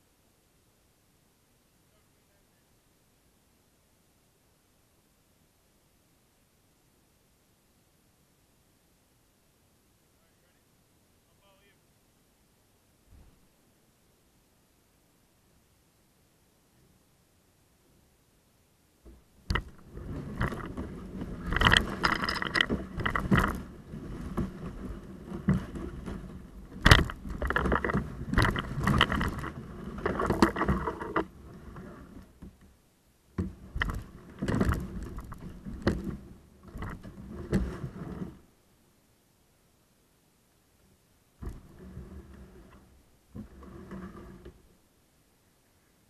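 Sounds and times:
kayak dragged over leaves and brush: 0:19.5 - 0:32.6, 0:33.4 - 0:38.6, 0:41.4 - 0:44.8.

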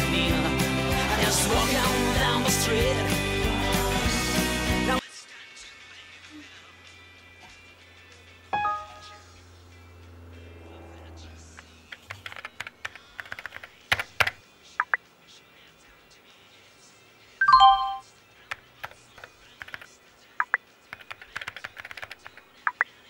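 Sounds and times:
messenger alert chime: 0:08.6 - 0:09.4, 0:17.4 - 0:18.0
computer keyboard typing: 0:11.9 - 0:15.0, 0:18.5 - 0:22.8.

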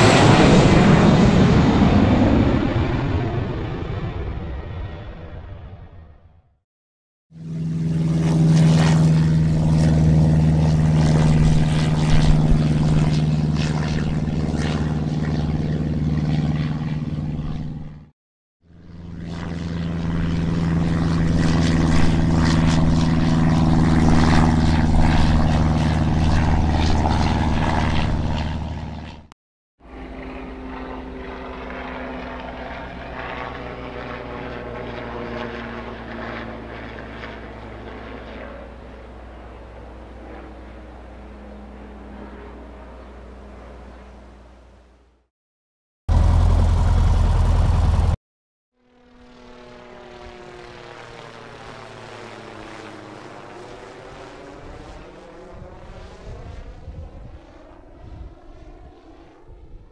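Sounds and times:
airplane engine humming: 0:07.4 - 0:18.1, 0:18.7 - 0:45.2, 0:46.1 - 0:48.2.

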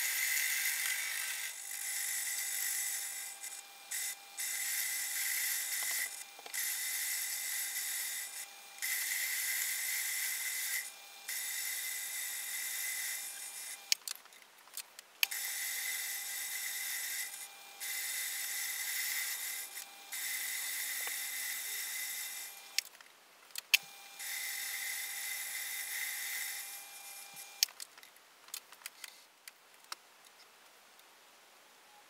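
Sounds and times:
metal lathe hiss and whine: 0:00.0 - 0:14.0, 0:15.3 - 0:22.8, 0:23.8 - 0:27.6.

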